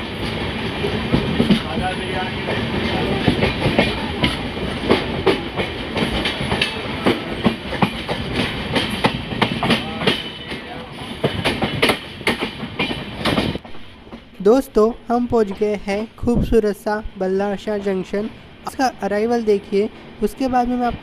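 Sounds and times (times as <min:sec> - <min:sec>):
wheels clicking over rail joints: 0:00.0 - 0:14.4
train wheels rumbling on rail: 0:00.0 - 0:21.0.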